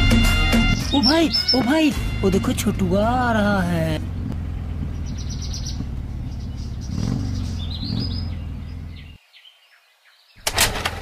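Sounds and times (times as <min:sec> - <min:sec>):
birds chirping: 0:00.0 - 0:10.6
motorcycle engine approaching: 0:02.1 - 0:09.2.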